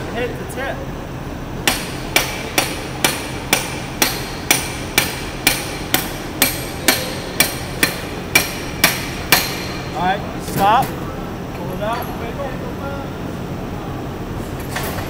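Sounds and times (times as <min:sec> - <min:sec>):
hammer tapping on metal: 0:01.6 - 0:09.9.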